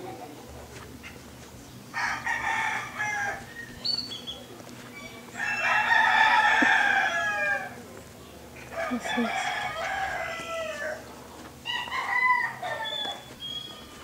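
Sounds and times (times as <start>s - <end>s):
rooster crowing: 1.9s - 3.9s, 5.0s - 7.8s, 8.7s - 14.0s.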